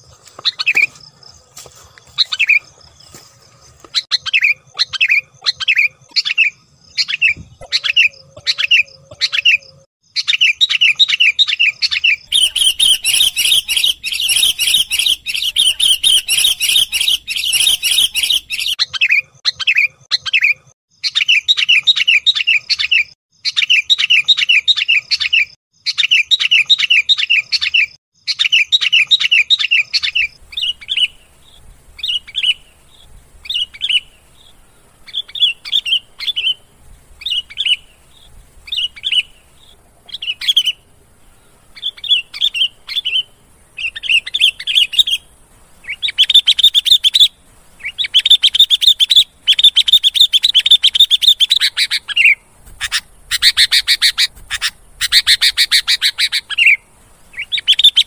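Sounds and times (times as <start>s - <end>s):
bird sharp chirps: 3.9s - 58.0s
higher hissy bird chattering: 12.3s - 19.2s, 30.0s - 58.0s.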